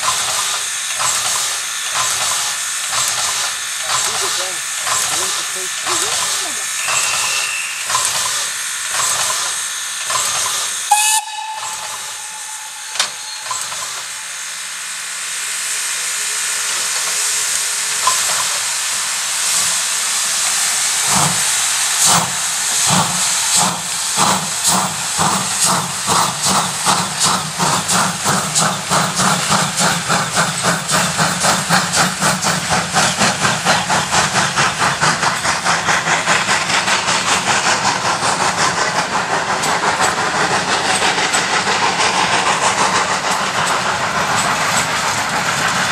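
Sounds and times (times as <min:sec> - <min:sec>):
steam hissing: 0:00.0 - 0:45.9
steam locomotive chuffing: 0:00.0 - 0:45.9.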